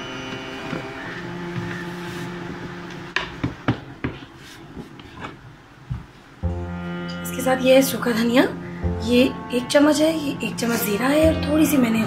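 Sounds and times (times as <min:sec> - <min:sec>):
faint background music: 0:06.4 - 0:12.0.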